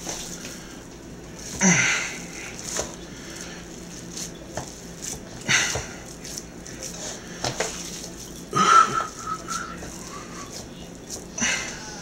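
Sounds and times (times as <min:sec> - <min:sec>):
ground beef squishing: 0:00.0 - 0:12.0.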